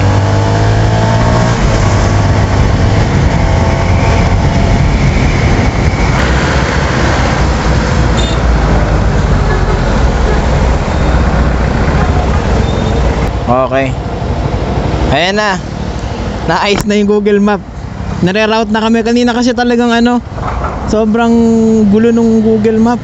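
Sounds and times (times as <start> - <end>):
wind noise: 0.0 - 13.4.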